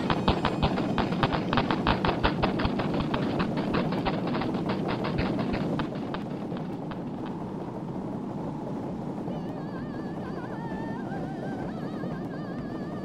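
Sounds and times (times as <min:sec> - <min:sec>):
rapid clicking: 0:00.0 - 0:07.8
low rumbling noise: 0:00.0 - 0:13.0.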